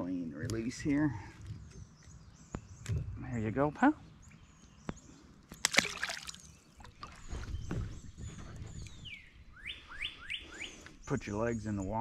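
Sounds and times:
fish splashing into water: 0:05.5 - 0:07.2
water sloshing: 0:05.5 - 0:09.0.

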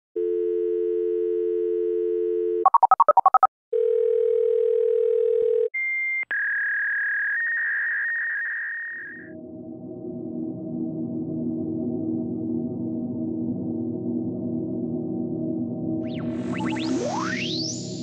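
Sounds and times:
telephone dial tone: 0:00.2 - 0:05.7
touch-tone keypad beeps: 0:02.7 - 0:03.5
high steady tone: 0:16.1 - 0:18.0.

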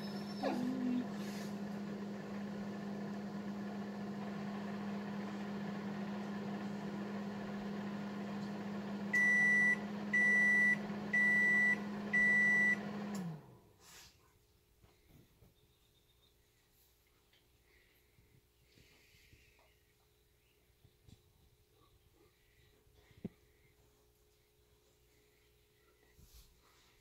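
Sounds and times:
appliance motor humming: 0:00.0 - 0:13.6.

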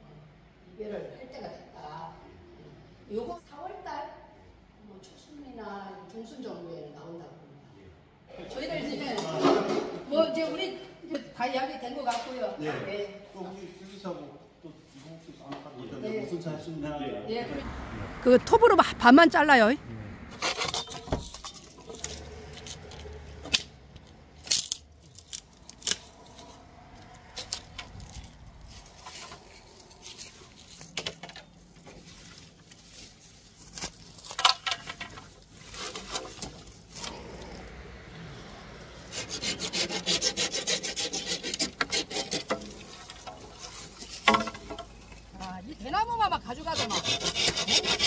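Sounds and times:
hand saw cutting bamboo: 0:20.3 - 0:23.7, 0:39.0 - 0:44.8, 0:46.6 - 0:48.0
bamboo poles knocking and scraping: 0:20.3 - 0:37.1, 0:39.1 - 0:45.6.

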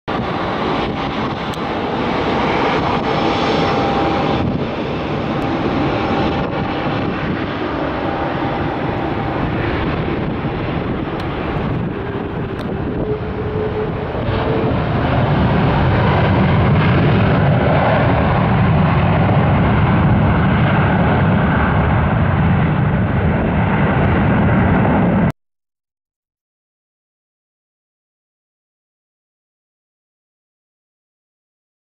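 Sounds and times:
jet engines roaring with whine: 0:00.1 - 0:25.3.

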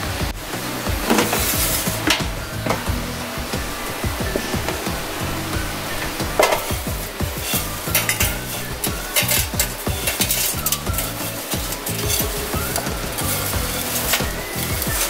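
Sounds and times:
candied peel scraping and crackling: 0:06.1 - 0:15.0.

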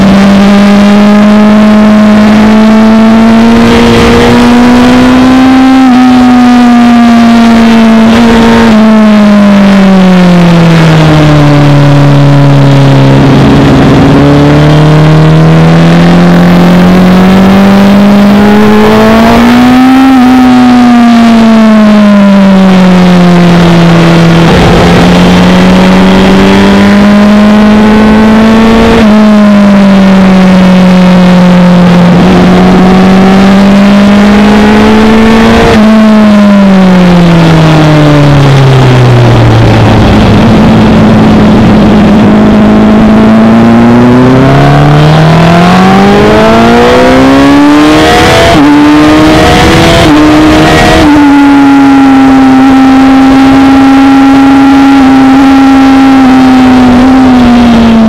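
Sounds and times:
motorcycle engine revving: 0:00.0 - 0:58.0
wind noise: 0:01.6 - 0:17.3, 0:22.5 - 0:33.0, 0:34.1 - 0:58.0.

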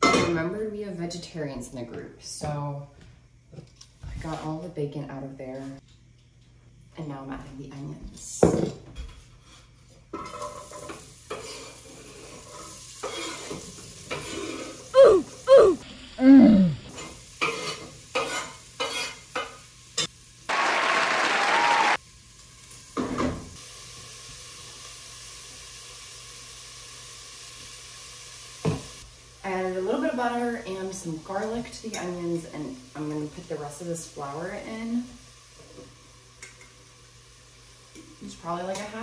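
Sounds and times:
onions sizzling in oil: 0:09.0 - 0:20.6, 0:21.9 - 0:39.0.

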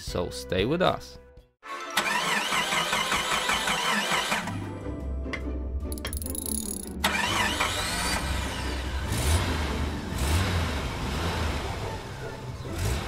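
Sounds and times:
car engine starting and revving: 0:02.0 - 0:04.7, 0:07.0 - 0:13.0.

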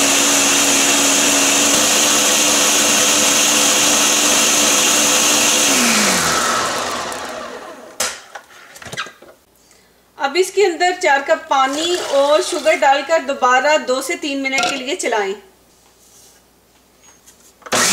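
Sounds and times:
blender running: 0:00.0 - 0:08.0, 0:11.7 - 0:12.9.

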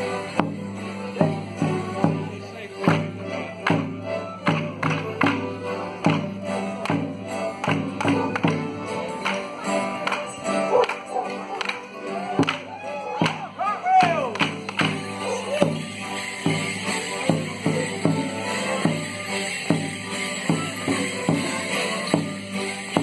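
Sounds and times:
folk band playing: 0:00.0 - 0:23.0.

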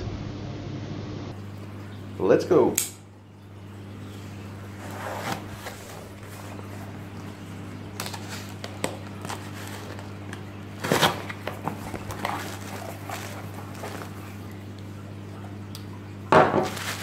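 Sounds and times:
steady low hum: 0:00.0 - 0:17.0
cardboard flaps pulled open: 0:04.8 - 0:06.7, 0:10.8 - 0:14.3.

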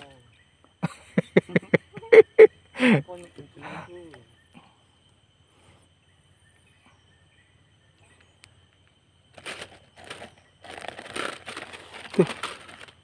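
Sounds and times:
rustling handling noise: 0:09.3 - 0:13.0.

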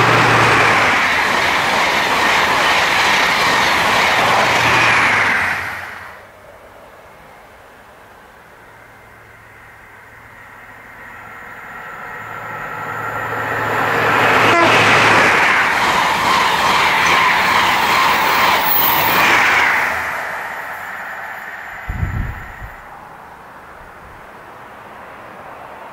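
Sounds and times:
train passing at speed: 0:00.0 - 0:25.9
sharp click of passing train: 0:14.4 - 0:22.8.

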